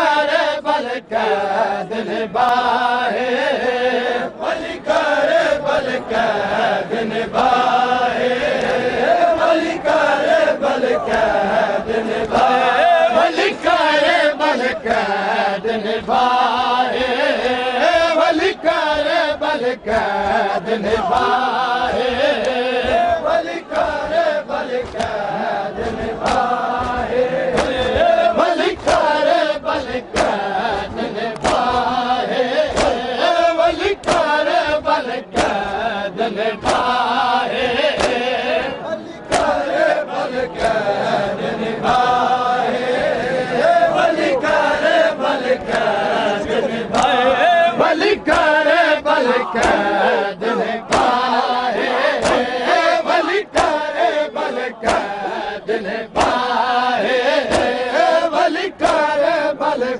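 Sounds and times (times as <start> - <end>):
group chanting a lament: 0.0 - 59.9
hands slapping chests: 12.1 - 12.5, 23.7 - 35.9, 36.6 - 38.4, 39.3 - 39.8, 40.5 - 40.9, 45.5 - 46.0, 46.6 - 47.2, 48.0 - 50.0, 50.8 - 53.9, 54.8 - 55.2, 56.2 - 56.5, 57.4 - 57.8, 58.8 - 59.1.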